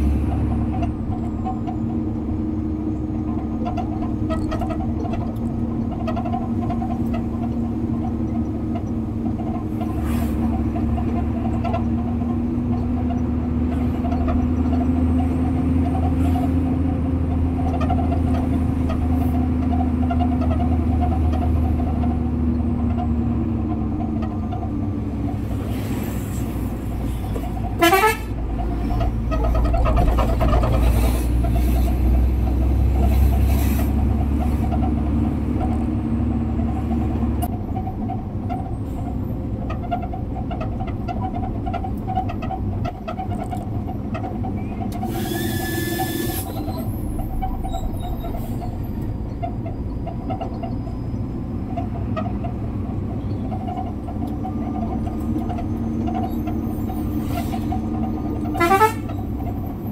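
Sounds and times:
truck engine running: 0.0 - 59.9
horn toots: 27.8 - 28.4, 58.4 - 59.2.

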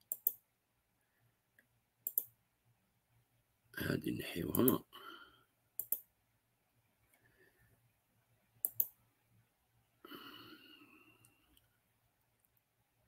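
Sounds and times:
computer mouse clicks: 0.0 - 0.4, 1.6 - 2.4, 4.5 - 4.8, 5.8 - 6.1, 8.6 - 9.0.

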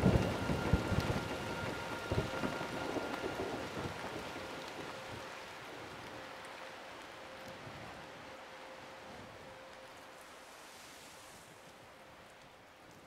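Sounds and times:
rain: 0.0 - 13.0
wind: 0.0 - 13.0.

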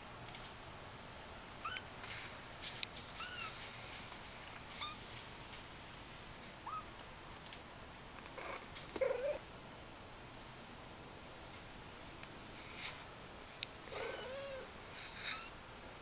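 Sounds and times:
kitten squeaky mews: 3.2 - 3.6, 4.8 - 5.0, 6.6 - 6.9, 13.9 - 15.5.

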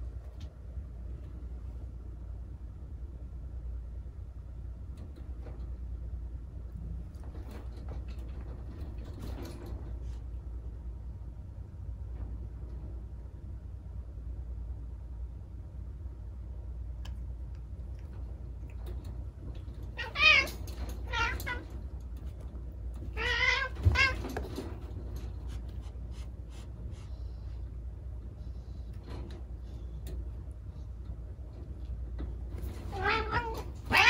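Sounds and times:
cat yowling: 23.1 - 24.2, 32.9 - 34.0.

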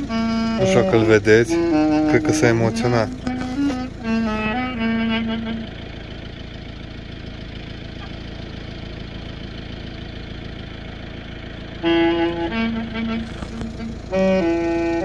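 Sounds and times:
trumpet note: 0.0 - 6.2, 11.8 - 15.0
engine idling: 0.0 - 15.0.

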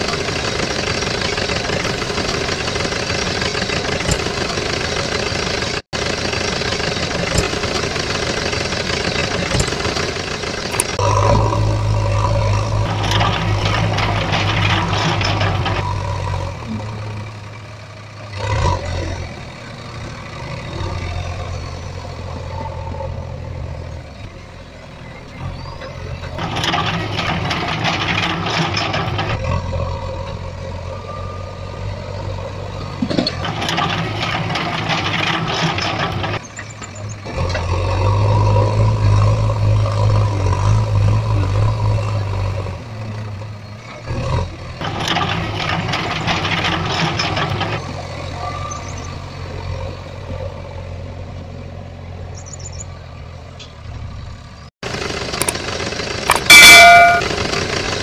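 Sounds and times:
low engine-like drone: 0.0 - 27.2.

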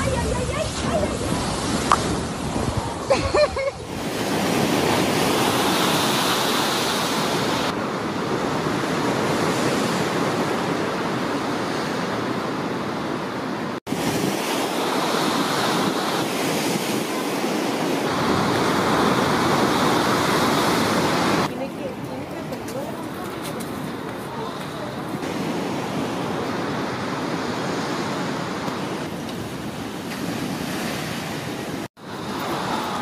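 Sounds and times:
wind on microphone: 0.0 - 33.0
surf breaking against rocks: 13.8 - 33.0.

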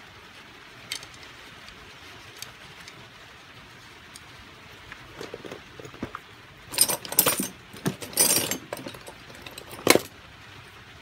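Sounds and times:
chainsaw clattering and rattling: 5.1 - 10.1.

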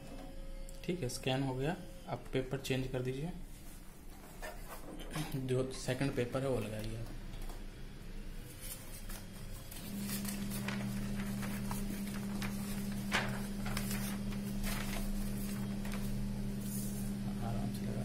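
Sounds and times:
photocopier electrical hum: 0.0 - 18.0
paper rustling: 8.5 - 17.2.

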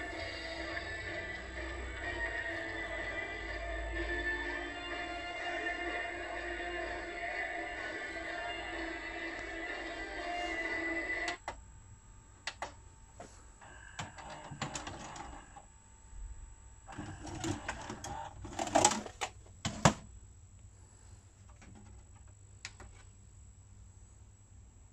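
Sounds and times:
cassette ejecting clicks and clunks: 14.0 - 15.4, 16.9 - 20.1.

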